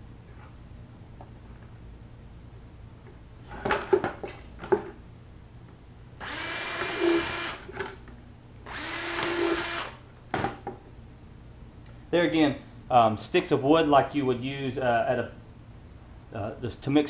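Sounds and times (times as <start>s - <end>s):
cordless drill boring plastic: 6.2s - 7.6s, 8.7s - 10.0s.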